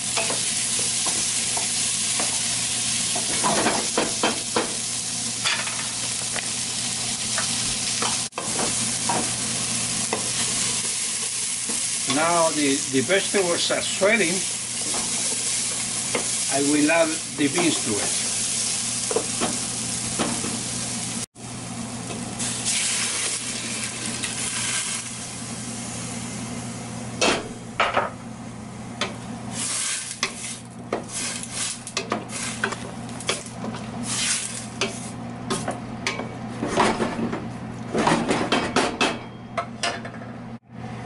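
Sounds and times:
vegetables sizzling in oil: 0:00.0 - 0:27.2, 0:29.5 - 0:35.2.

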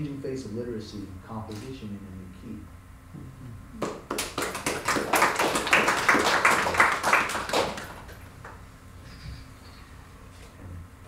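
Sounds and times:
audience applauding: 0:03.8 - 0:08.6.

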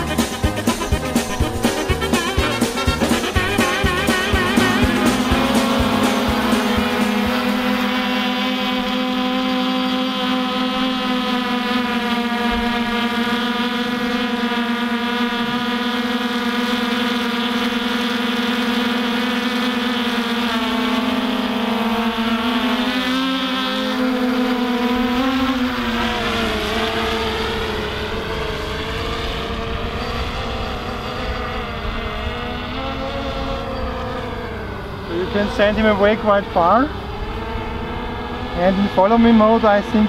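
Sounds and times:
low rumble: 0:00.0 - 0:08.4
drone motors buzzing: 0:00.0 - 0:40.0.

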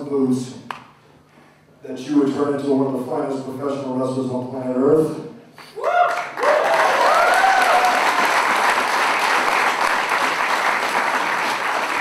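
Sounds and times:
people cheering: 0:05.8 - 0:12.0
crowd applauding: 0:06.0 - 0:12.0.

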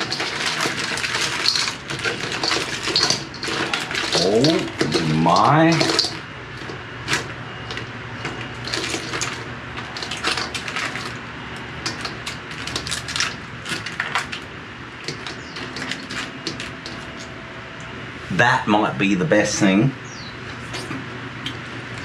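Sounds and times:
crab crunching while eating: 0:00.0 - 0:17.4.

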